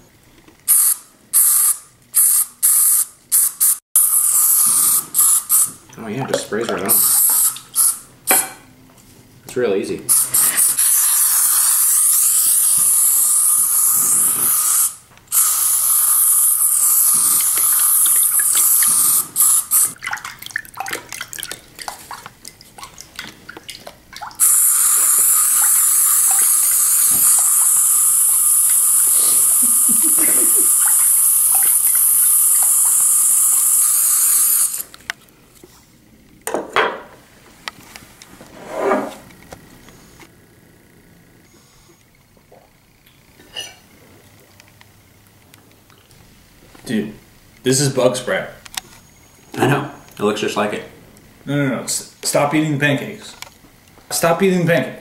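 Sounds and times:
aerosol can spraying: 0.7 - 5.7, 10.1 - 20.0, 24.4 - 34.9.

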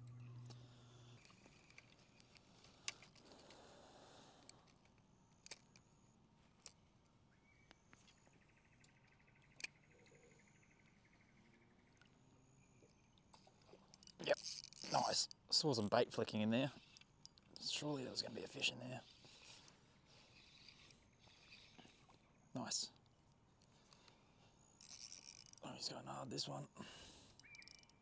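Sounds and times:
faint hum: 0.0 - 6.2
small clicks and ticks: 0.0 - 10.2, 13.3 - 22.2, 22.9 - 25.8, 27.2 - 28.0.

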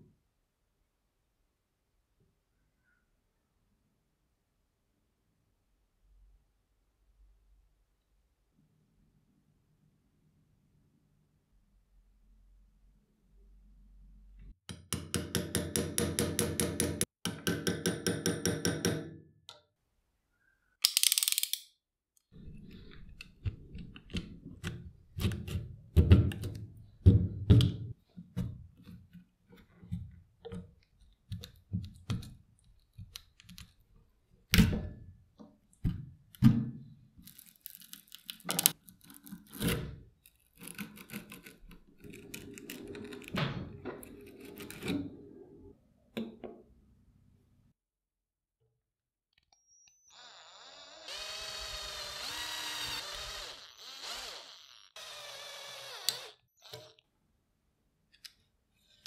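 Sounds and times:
knife cutting and scraping grip: 37.3 - 43.2.

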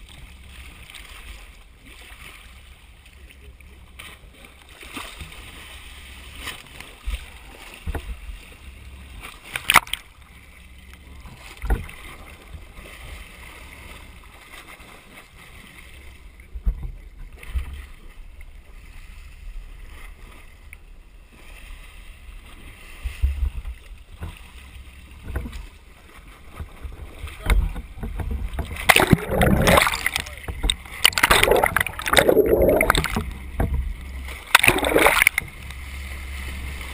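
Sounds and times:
muffled boat rumble: 0.0 - 36.9.

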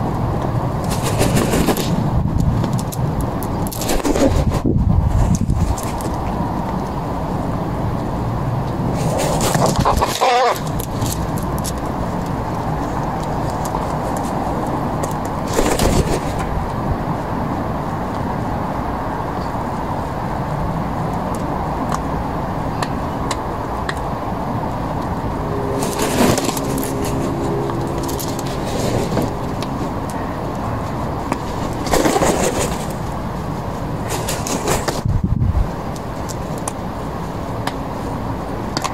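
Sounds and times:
road traffic rumble: 0.0 - 38.9.

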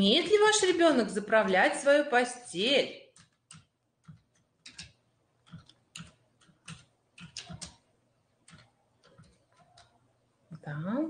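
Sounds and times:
faint keyboard keystrokes: 3.1 - 10.0.

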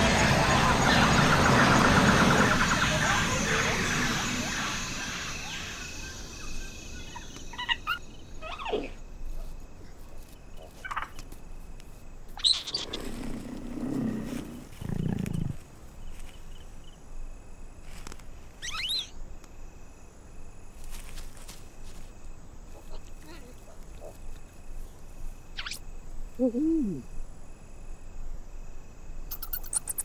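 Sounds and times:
animal and bird calls: 0.1 - 11.2, 12.3 - 15.6, 18.6 - 19.2, 25.5 - 25.8, 29.3 - 30.0
low growl-like call: 12.8 - 15.6.

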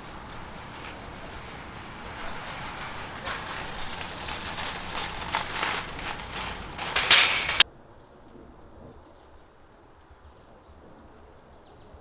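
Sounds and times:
shopping cart rattling over concrete: 0.0 - 7.6.

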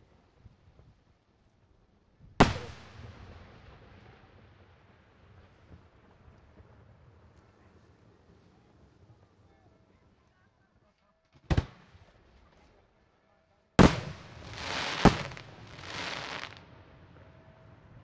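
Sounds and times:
fireworks bangs: 2.4 - 3.3, 13.8 - 16.6
fireworks hissing: 13.8 - 16.6.

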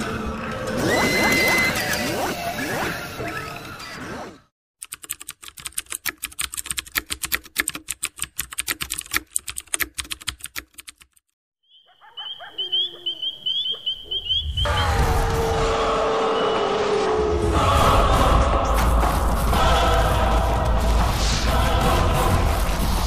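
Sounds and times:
keyboard typing clicks: 4.8 - 11.2.

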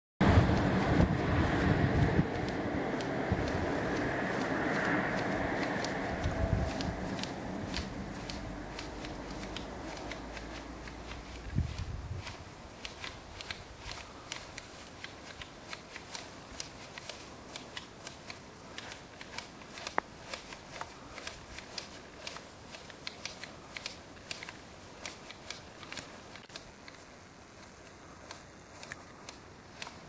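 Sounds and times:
leaves rustling: 0.2 - 30.0
shears snipping shoots: 0.4 - 30.0.

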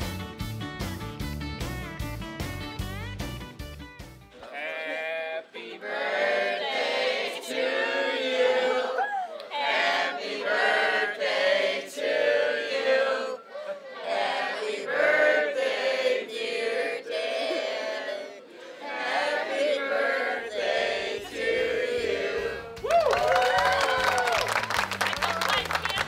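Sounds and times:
group singing in unison: 4.4 - 22.8.

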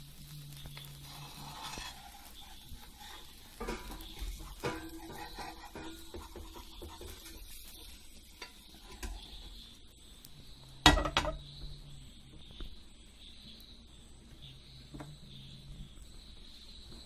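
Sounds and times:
frying pan clanking on steel plate: 3.6 - 7.4, 10.8 - 11.4.

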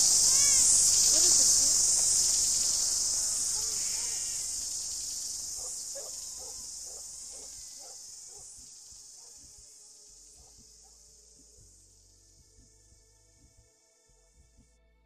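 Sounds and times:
insects buzzing: 0.0 - 14.1.

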